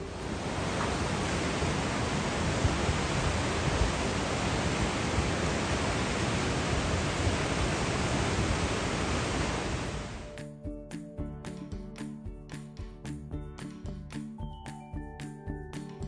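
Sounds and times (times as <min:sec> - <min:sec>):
wind buffeting microphone: 0:00.0 - 0:10.2.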